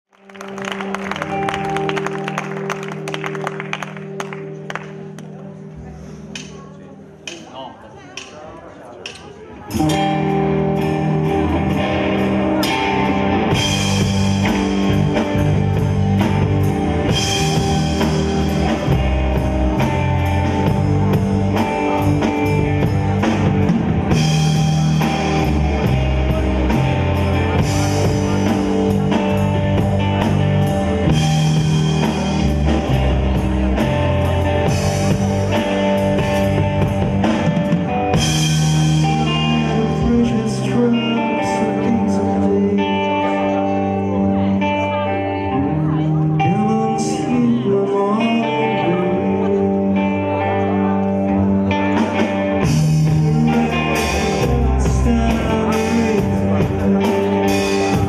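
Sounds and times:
electric guitar: 0.1 - 7.1, 9.5 - 58.0
bass guitar: 0.1 - 7.3, 9.6 - 58.0
drum kit beat: 9.1 - 41.9, 51.9 - 58.0.

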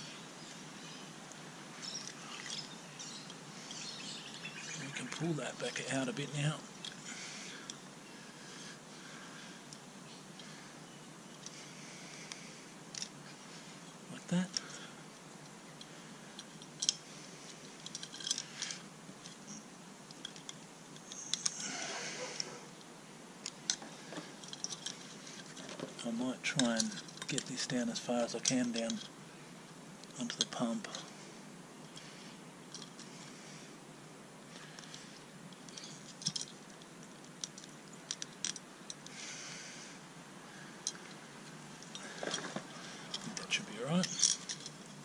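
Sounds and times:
metal and plastic clicks and rattles: 17.8 - 19.4, 20.1 - 21.6, 23.4 - 27.8, 28.4 - 29.1, 32.7 - 33.1, 34.5 - 39.2, 41.8 - 45.0.

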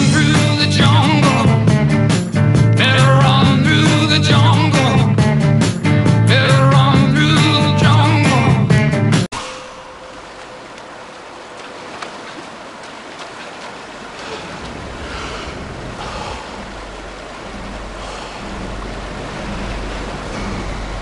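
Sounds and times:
river rapids roaring: 9.4 - 21.0.

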